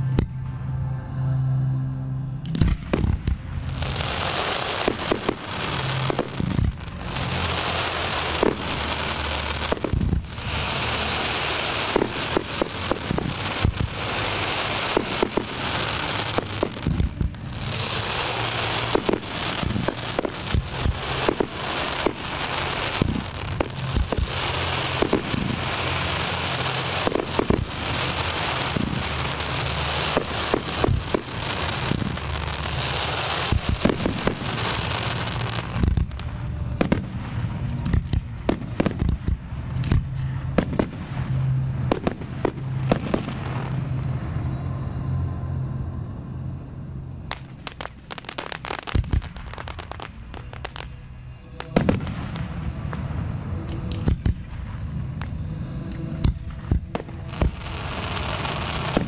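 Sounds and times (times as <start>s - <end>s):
firework launches and bursts: 2.4s - 44.1s, 47.3s - 50.9s
crackling hiss: 2.4s - 59.0s
sharp firework bangs: 2.5s - 43.9s.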